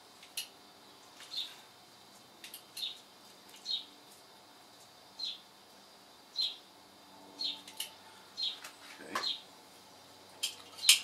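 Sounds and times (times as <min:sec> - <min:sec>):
small bird chirping: 0:01.2 - 0:01.7, 0:02.5 - 0:04.0, 0:05.2 - 0:05.5, 0:06.3 - 0:06.7, 0:07.4 - 0:09.5.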